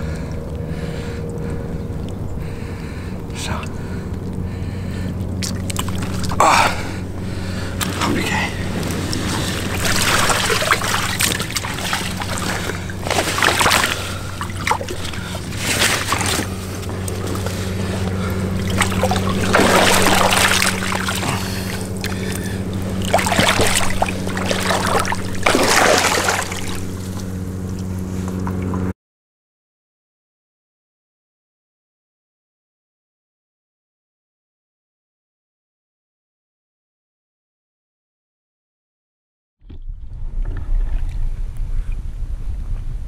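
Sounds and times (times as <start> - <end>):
boat motor humming: 0.0 - 28.9
water surging: 5.4 - 28.0.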